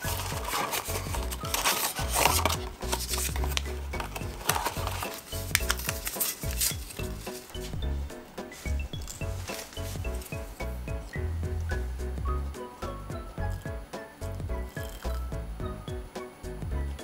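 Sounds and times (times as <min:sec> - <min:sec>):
paper and cardboard rustling: 0:00.0 - 0:07.8, 0:08.4 - 0:11.1
soft background music: 0:00.0 - 0:17.0.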